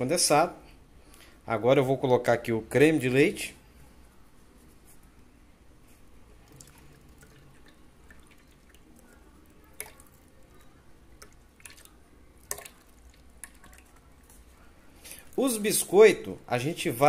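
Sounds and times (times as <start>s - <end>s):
cream trickling into a jar: 6.4s - 14.3s.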